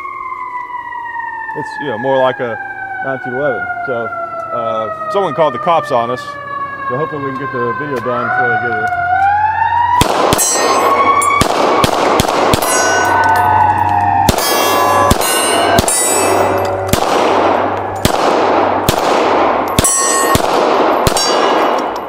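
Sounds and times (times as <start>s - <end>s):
pistol shots: 10.0s - 13.3s, 14.2s - 22.0s
steel plate ringing clang: 10.4s - 11.4s, 12.6s - 13.7s, 14.4s - 17.0s, 19.6s - 20.4s, 21.0s - 22.0s.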